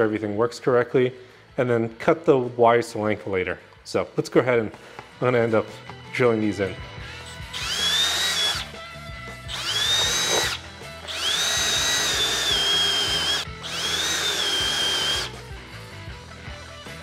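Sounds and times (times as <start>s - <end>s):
power drill whining: 7.1s - 8.8s, 9.5s - 15.4s.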